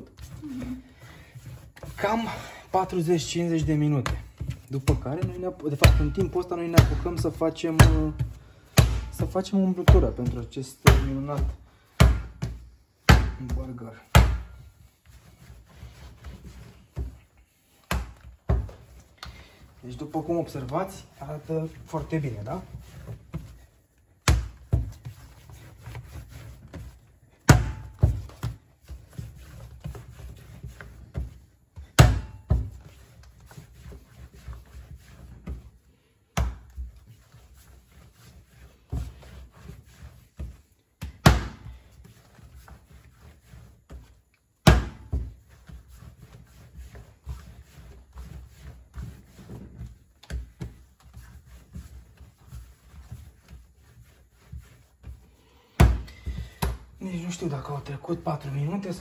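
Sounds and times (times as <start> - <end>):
soft slaps and handling noises: 2.9 - 15.2, 16.0 - 37.8, 43.8 - 53.7, 54.5 - 57.5
dough slapped onto work surface: 7.8 - 9.2, 10.8 - 14.5, 31.9 - 32.7, 36.3 - 36.8, 41.0 - 41.7, 44.6 - 45.3, 55.8 - 56.9.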